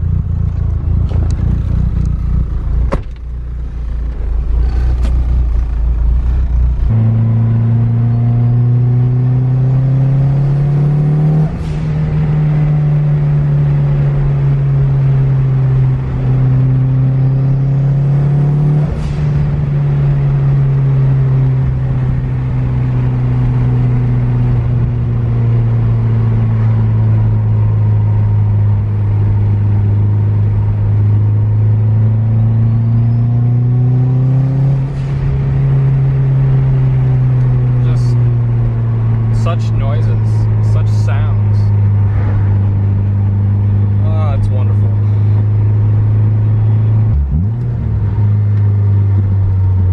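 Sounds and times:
car engine revving through gears: 0:00.0 - 0:49.9.

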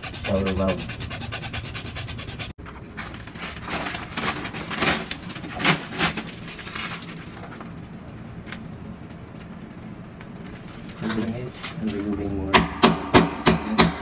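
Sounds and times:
hacksaw sawing plastic pipe: 0:00.0 - 0:01.2.

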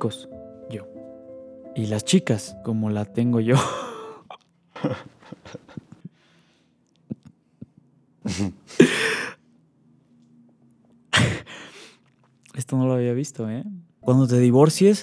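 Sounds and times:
man laughing hard: 0:03.5 - 0:06.0, 0:08.2 - 0:09.4.

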